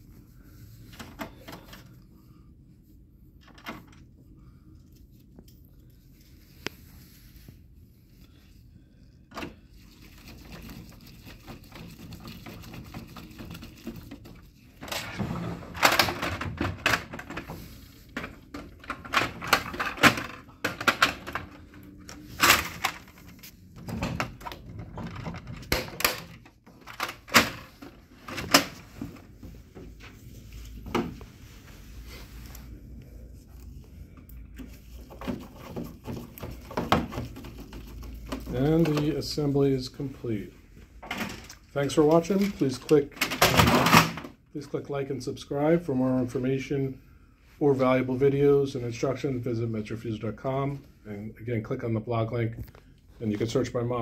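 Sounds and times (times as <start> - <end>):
plastic panels clicking and rattling: 18.2 - 28.8, 43.2 - 44.3.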